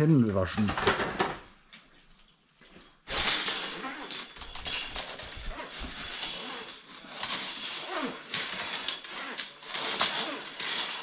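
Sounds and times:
metal spiral scraping on concrete: 0:03.1 - 0:11.0.

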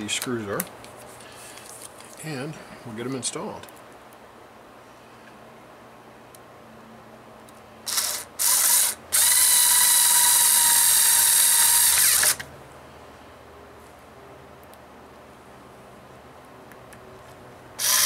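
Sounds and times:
electric screwdriver motor whine: 0:07.9 - 0:12.4, 0:17.8 - 0:18.0.

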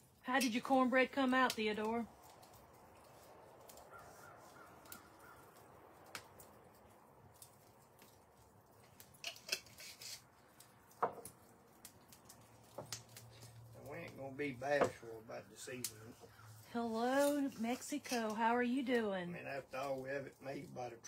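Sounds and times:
faint clicks: 0:04.6 - 0:06.6.

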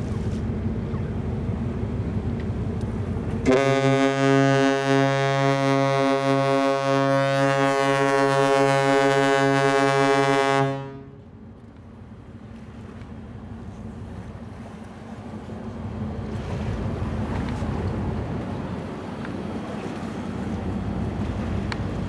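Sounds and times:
low rumble of wind: 0:00.0 - 0:22.0
ship horn blast: 0:03.4 - 0:11.3.

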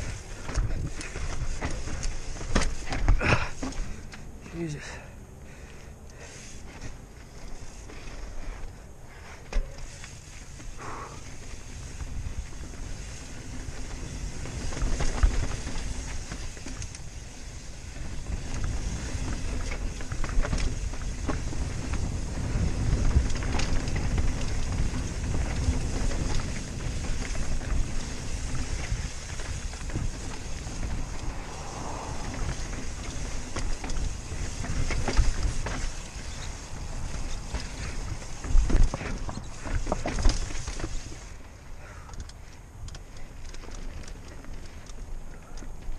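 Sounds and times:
bike knocks and rattles: 0:00.0 - 0:04.3, 0:06.6 - 0:45.9
wind over microphone: 0:10.5 - 0:41.4.

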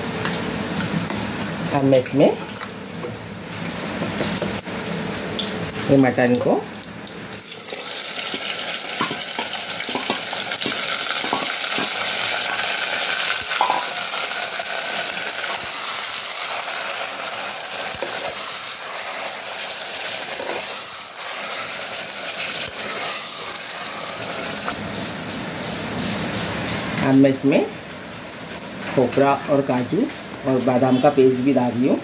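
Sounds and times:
meat sizzling in hot oil: 0:02.6 - 0:24.8
steel ladle clinking on pot: 0:08.3 - 0:12.0, 0:13.4 - 0:14.0.

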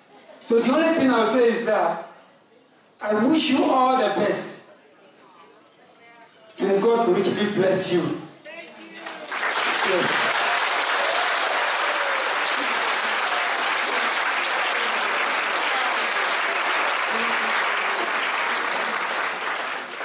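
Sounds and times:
audience applauding: 0:09.0 - 0:20.0.

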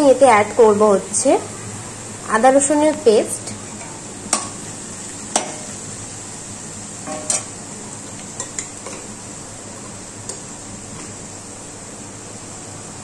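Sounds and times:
onions sizzling in oil: 0:00.0 - 0:13.0
spatula clinking against pan: 0:05.3 - 0:05.7, 0:07.0 - 0:07.5.

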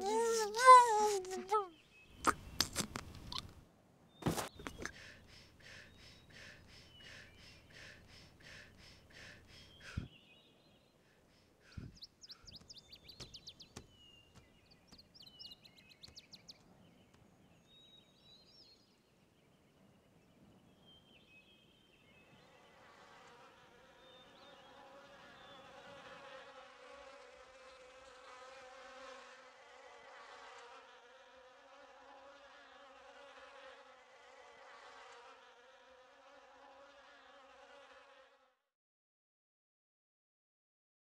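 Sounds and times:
flies buzzing: 0:00.0 - 0:03.6, 0:04.2 - 0:10.1, 0:22.4 - 0:38.6.

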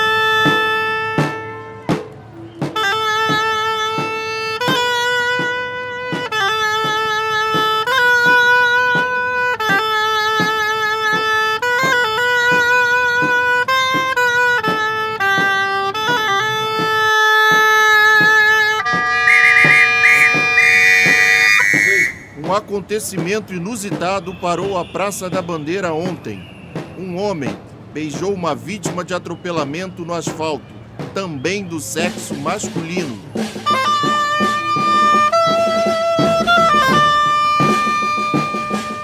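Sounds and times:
oboe playing slow melody: 0:18.6 - 0:22.4.

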